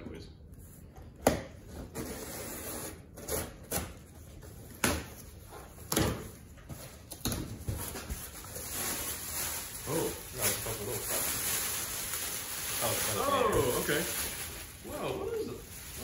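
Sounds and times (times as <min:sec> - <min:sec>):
plastic wrapping crinkling: 0:07.8 - 0:16.0.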